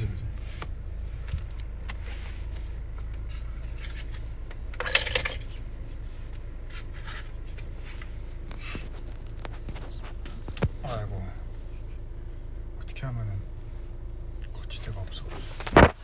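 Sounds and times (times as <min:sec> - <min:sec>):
car road rumble inside cabin: 0:00.0 - 0:16.0.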